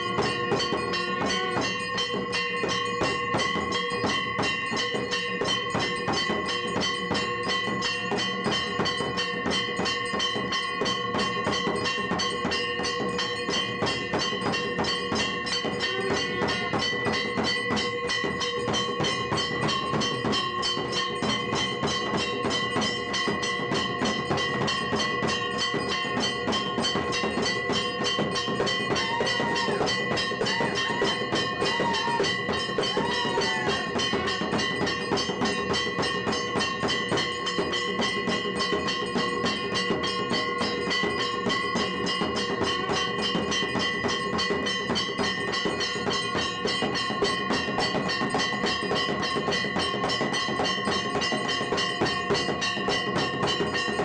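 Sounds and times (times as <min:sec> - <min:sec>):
fast clatter of strikes: 0:00.0 - 0:54.0
temple bells ringing: 0:00.0 - 0:54.0
faint voices: 0:28.9 - 0:34.8.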